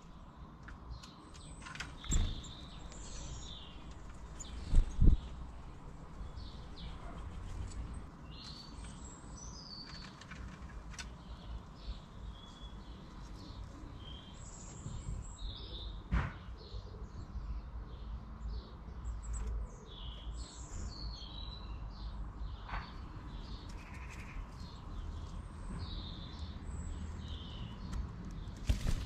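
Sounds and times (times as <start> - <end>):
small birds chirping: 0.0 - 29.0
low wind rumble: 1.8 - 9.6.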